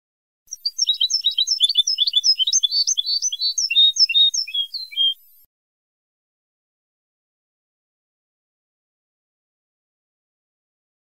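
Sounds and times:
goldfinch twittering song: 0.5 - 5.5.

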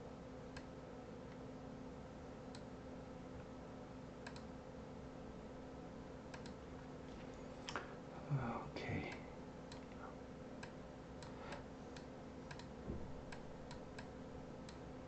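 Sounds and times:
low electrical hum and hiss: 0.0 - 15.0
faint computer mouse clicks: 4.2 - 4.5, 6.3 - 6.6, 10.6 - 12.7.

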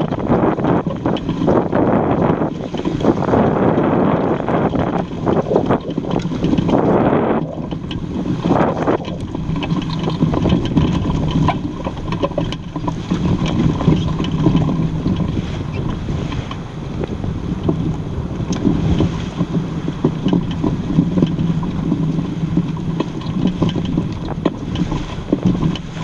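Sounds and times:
small ticks and knocks: 0.0 - 26.0
water rushing along hull: 0.0 - 26.0
wind buffeting microphone: 0.0 - 26.0.

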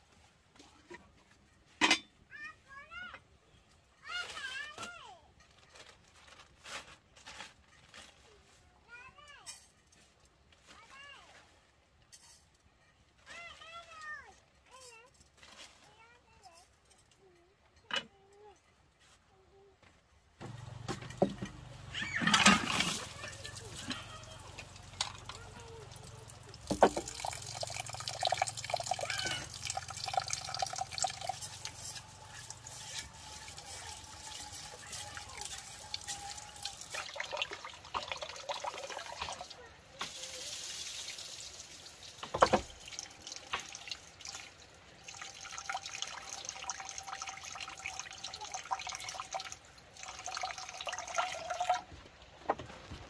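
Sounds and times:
small clatters of handling: 0.0 - 2.3, 3.0 - 37.0
water running and splashing: 20.4 - 51.9
water dripping: 20.5 - 51.8.

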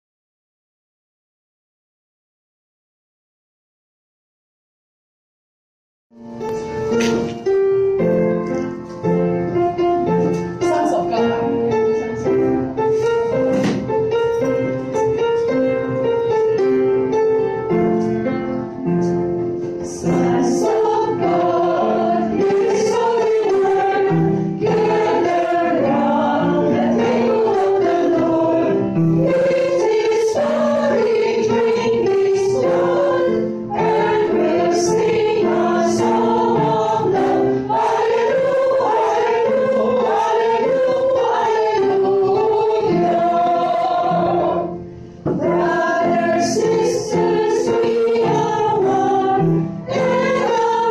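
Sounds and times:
small choir singing gospel: 18.2 - 50.9.

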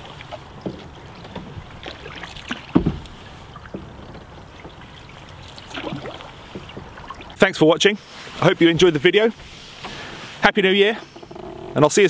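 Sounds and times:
paddle splashes and drips: 0.0 - 10.4
low knock on canoe: 0.6 - 4.9.

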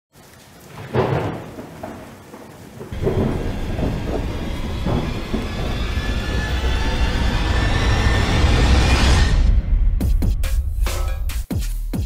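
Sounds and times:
heavy steady rain: 0.1 - 9.3
thunder clap: 0.2 - 10.4
deep rumbles of thunder: 0.6 - 10.1.

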